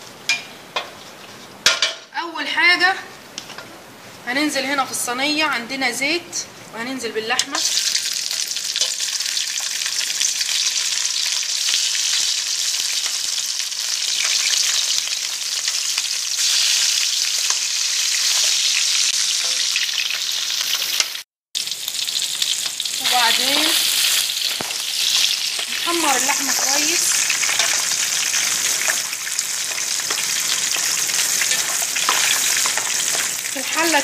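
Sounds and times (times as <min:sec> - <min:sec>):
meat sizzling in hot oil: 0:07.5 - 0:34.0.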